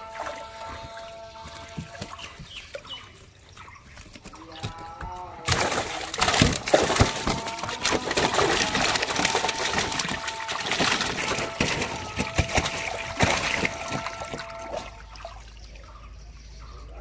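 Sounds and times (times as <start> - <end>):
fish splashing in water: 0.0 - 4.4, 5.4 - 16.2
fish slapping on tarp: 5.4 - 15.2.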